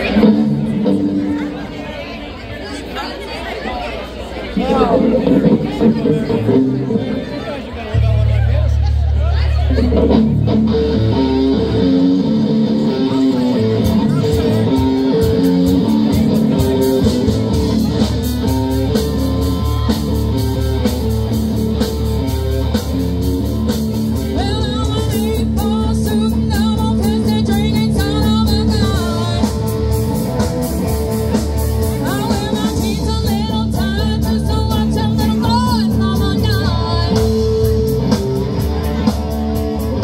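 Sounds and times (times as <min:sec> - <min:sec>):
rock band playing: 0:00.0 - 0:40.0
person singing: 0:24.2 - 0:29.8, 0:31.9 - 0:37.9.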